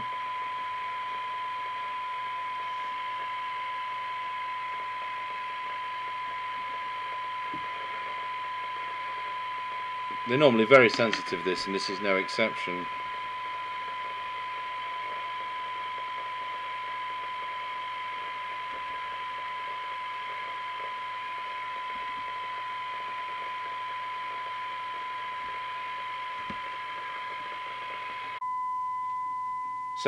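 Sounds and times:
radio hiss: 0.0s - 28.4s
radio test tone: 0.0s - 30.0s.

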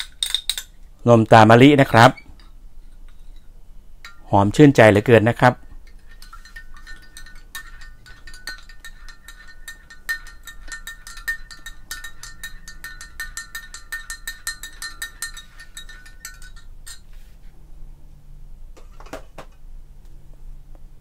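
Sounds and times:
metal spoon clinking against glass: 0.0s - 0.8s, 4.0s - 5.0s, 5.6s - 17.1s.

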